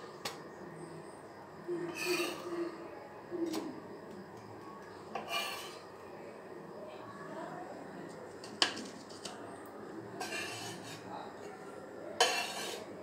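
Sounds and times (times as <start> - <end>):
spatula scraping pan: 1.8 - 2.7, 5.1 - 5.9, 8.4 - 9.4, 10.1 - 13.0
spatula tapping pan: 8.4 - 9.4, 12.2 - 12.8
metal spatula clinking on plate: 12.2 - 12.8.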